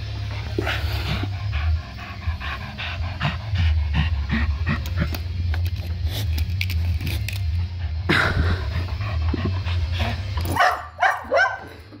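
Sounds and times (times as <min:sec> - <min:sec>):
toy helicopter rotor buzzing: 0:00.0 - 0:11.8
dog barking: 0:10.5 - 0:11.8.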